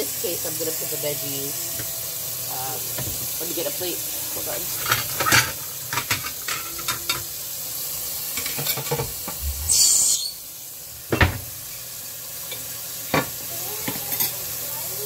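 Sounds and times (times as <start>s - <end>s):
tap water running into sink: 1.6s - 7.4s, 8.2s - 11.8s
knocks and clatters in sink: 4.7s - 7.3s, 8.4s - 9.4s, 11.1s - 11.5s.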